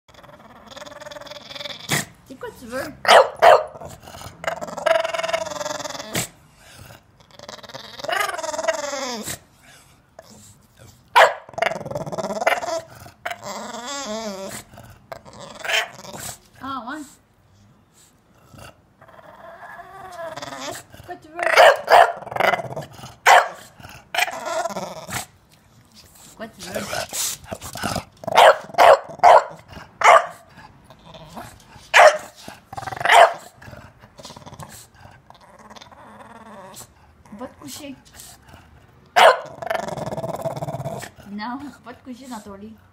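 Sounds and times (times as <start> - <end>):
dog grunt: 0.1 - 2.3, 3.7 - 9.6, 10.2 - 16.5, 18.3 - 25.4, 26.6 - 41.8
dog grumbling and growling: 0.1 - 16.8, 18.3 - 25.4, 26.5 - 42.6
dog barking: 3.1 - 3.8, 11.2 - 11.5, 21.6 - 22.2, 23.3 - 23.6, 28.4 - 30.4, 32.0 - 32.4, 33.1 - 33.4, 39.2 - 39.5
dog whining: 4.5 - 6.4, 7.2 - 9.4, 11.5 - 16.3, 19.0 - 20.9, 24.2 - 25.2.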